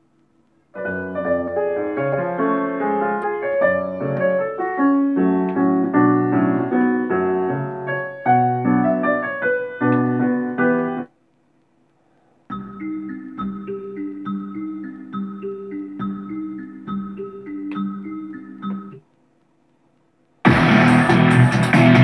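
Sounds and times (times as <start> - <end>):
piano music from speakers: 0.7 - 11.1, 12.5 - 19.1.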